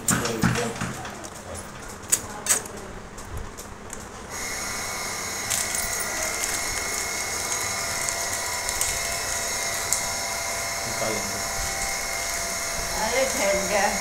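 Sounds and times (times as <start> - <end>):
steady machine whine: 3.0 - 14.0.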